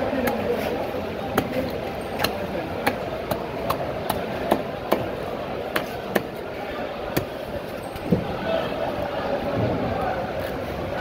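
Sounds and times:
knife chopping fish on wooden block: 0:02.2 - 0:06.4.

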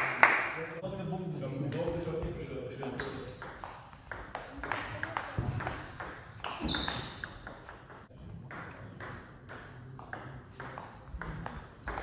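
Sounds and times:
brief high squeak: 0:06.6 - 0:07.4.

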